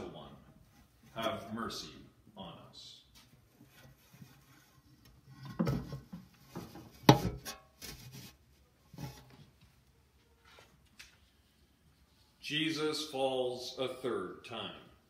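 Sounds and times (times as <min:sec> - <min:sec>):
wooden cross knocking and scraping: 0:03.2 - 0:08.3.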